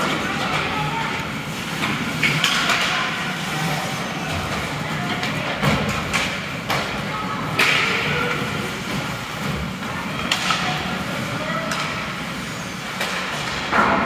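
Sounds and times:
steady background hum: 0.0s - 14.0s
hockey sticks and puck knocking: 1.7s - 3.1s, 5.1s - 10.9s, 11.6s - 12.1s.

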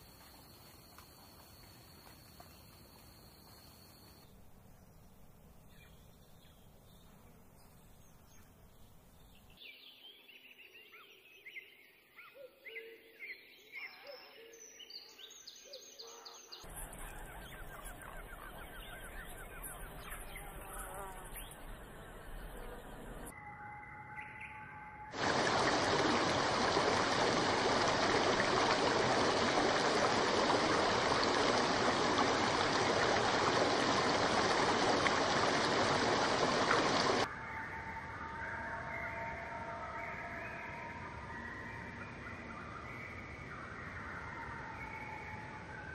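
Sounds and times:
high steady hiss: 25.2s - 37.3s.

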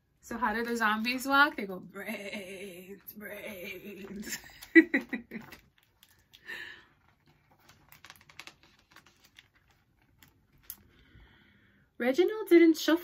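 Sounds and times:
paper page rustling: 3.8s - 10.9s.

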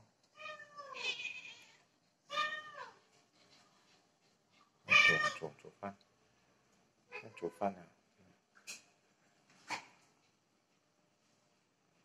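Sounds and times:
cat meowing: 0.4s - 3.0s, 4.9s - 5.5s.

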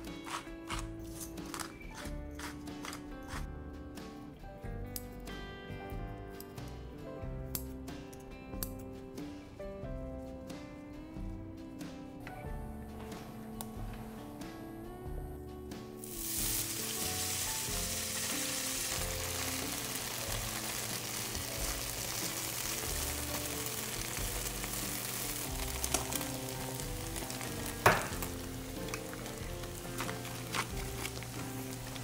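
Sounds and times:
food sizzling in hot oil: 16.0s - 32.0s.

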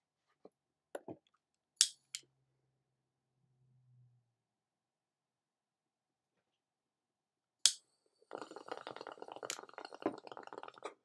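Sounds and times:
bong water bubbling: 8.3s - 11.0s.

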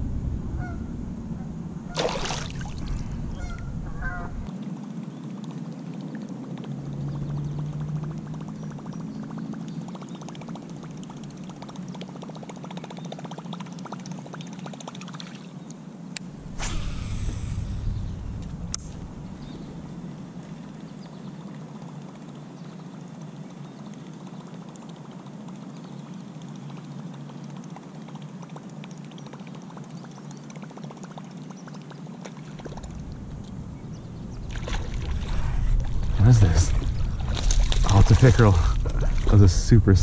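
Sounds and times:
water splashing: 1.9s - 4.5s, 16.2s - 21.0s, 30.8s - 40.0s.

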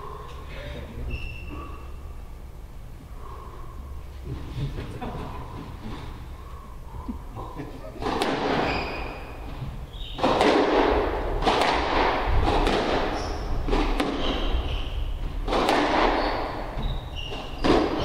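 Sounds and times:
squash ball hits: 8.0s - 18.0s
shoes squeaking on wooden floor: 8.4s - 10.4s, 13.1s - 18.0s.

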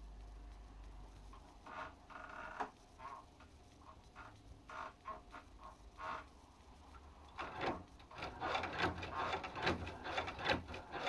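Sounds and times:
sewing machine mechanism clacking: 7.4s - 11.0s.

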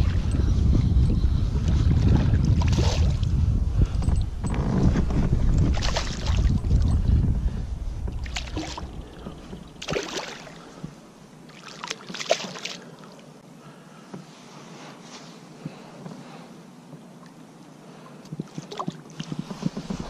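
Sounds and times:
low rumble: 0.0s - 9.9s.

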